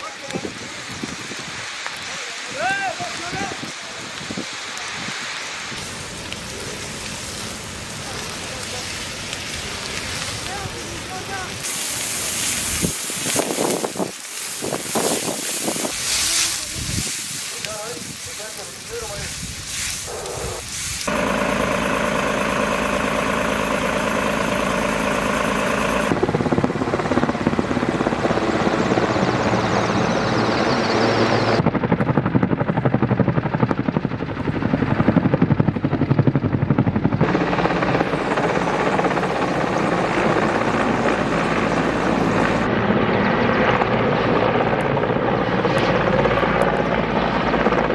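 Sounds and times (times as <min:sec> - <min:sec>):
helicopter rotor blades chopping: 0:10.5 - 0:47.9.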